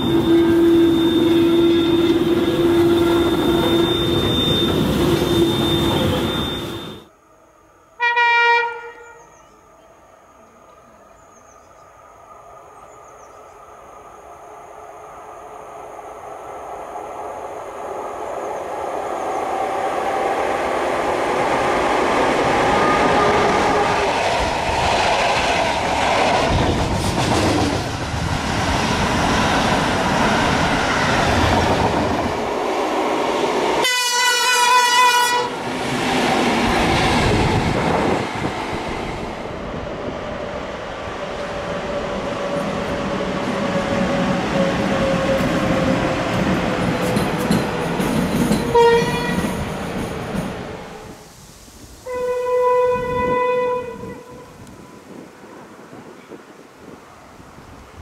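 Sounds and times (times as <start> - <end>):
train horn blast: 0.0 - 7.1, 8.0 - 9.3, 33.8 - 35.6, 48.6 - 49.6, 52.0 - 55.2
train wheels rumbling on rail: 0.0 - 7.1, 16.2 - 51.2.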